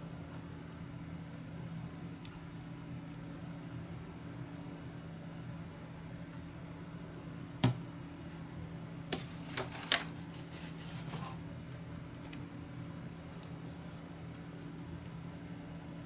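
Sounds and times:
steady low hum: 0.0s - 16.0s
papery clicks and rustles: 9.2s - 12.5s.

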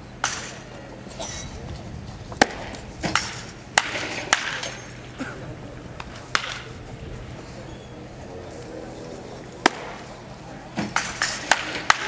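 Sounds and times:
wooden bats cracking balls: 0.2s - 0.8s, 1.7s - 5.1s, 6.0s - 6.9s, 9.5s - 12.0s.

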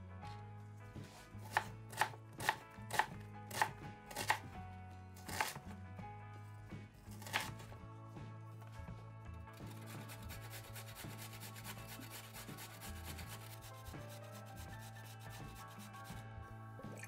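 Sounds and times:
knife chopping on wooden board: 1.4s - 4.5s, 5.2s - 5.6s, 7.1s - 7.6s.

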